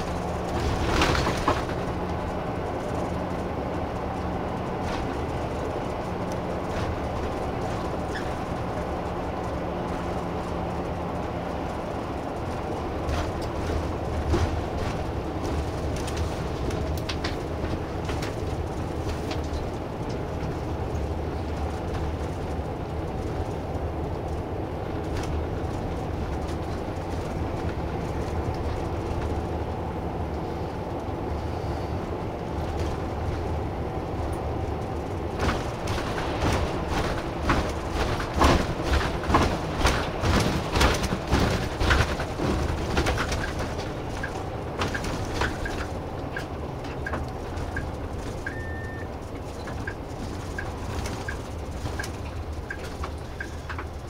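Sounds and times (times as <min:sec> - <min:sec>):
cabin rattles and clicks: 0:00.0 - 0:03.3, 0:35.2 - 0:48.5
bus engine and road rumble: 0:00.0 - 0:54.0.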